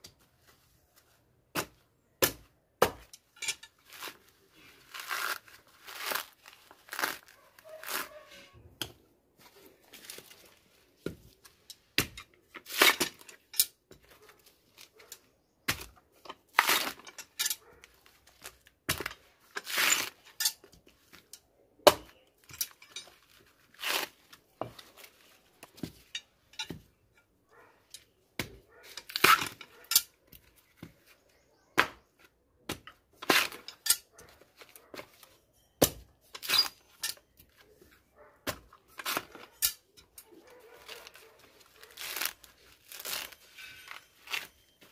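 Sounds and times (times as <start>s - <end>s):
coconut husk fibres ripping: 3.8s - 8.6s, 16.5s - 17.0s, 23.2s - 24.4s, 40.8s - 44.6s.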